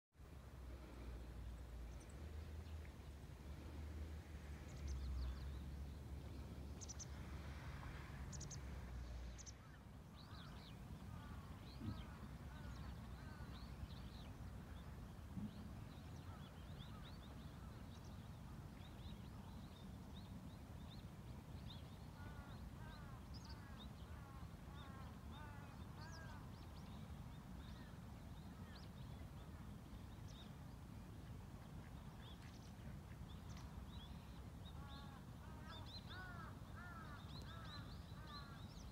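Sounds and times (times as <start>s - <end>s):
birds calling: 34.7s - 38.9s.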